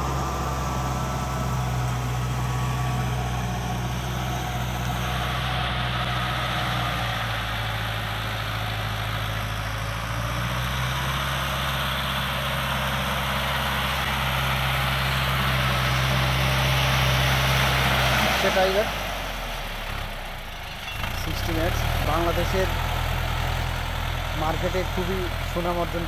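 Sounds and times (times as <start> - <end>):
tractor diesel engine running: 0.0 - 26.0.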